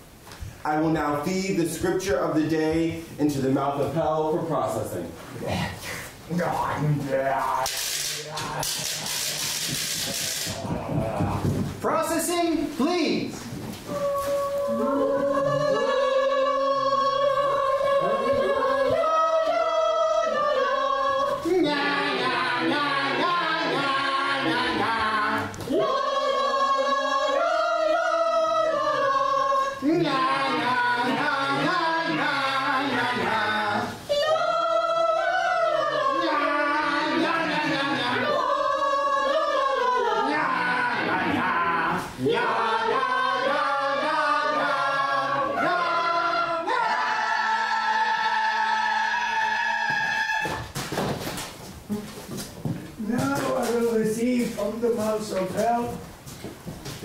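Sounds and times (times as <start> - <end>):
group singing without instruments: 13.2 - 50.8.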